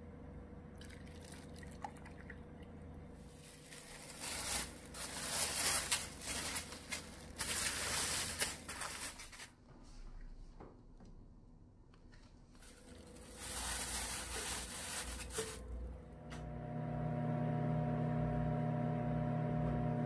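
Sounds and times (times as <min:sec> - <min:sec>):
liquid pouring and splashing: 0:00.8 - 0:02.5.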